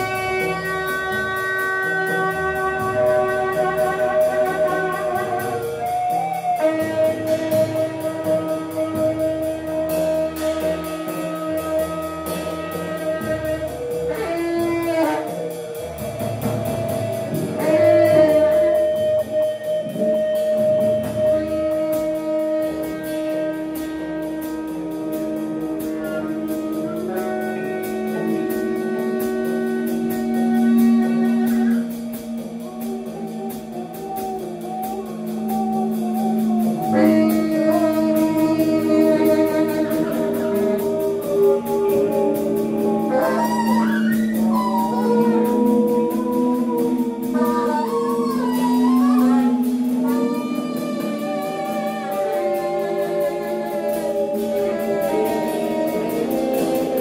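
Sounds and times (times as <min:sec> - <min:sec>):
bass clarinet held tones: 0:00.0 - 0:57.0
saxophone held tones: 0:00.0 - 0:57.0
guitar held tones: 0:25.8 - 0:57.0.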